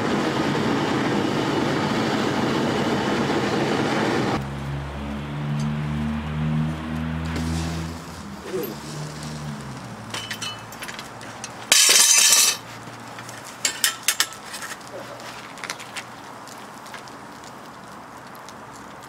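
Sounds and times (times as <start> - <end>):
metal tongs clanking on crucible: 10.1 - 12.6, 13.6 - 14.4.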